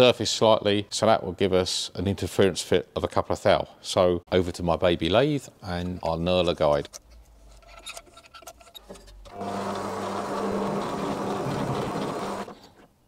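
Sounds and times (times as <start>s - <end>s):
lathe motor hum: 9.3s - 12.6s
knurling wheels grinding metal: 9.3s - 12.8s.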